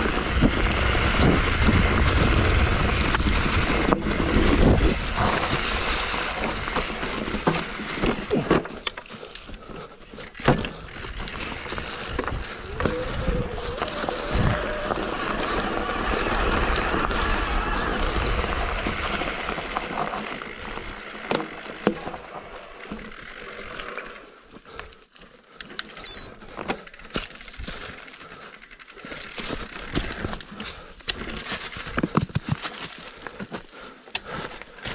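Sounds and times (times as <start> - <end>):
wind on microphone: 0.0 - 5.8, 12.1 - 19.4
bike clicks and rattles: 0.0 - 34.9
mountain bike rolling: 0.0 - 34.9.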